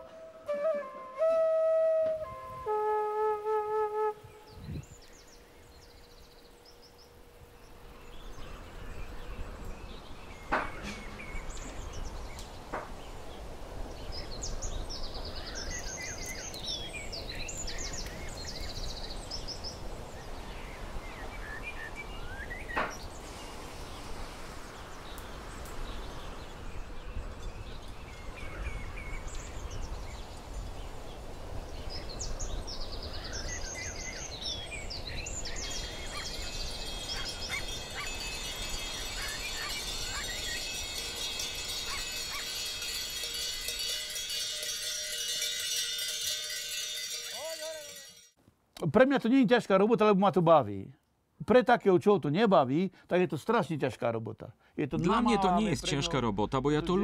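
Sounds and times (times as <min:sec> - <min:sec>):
held flute note: 0:00.0 - 0:04.8
small birds chirping: 0:04.4 - 0:44.3
sharp knocks: 0:10.5 - 0:11.3.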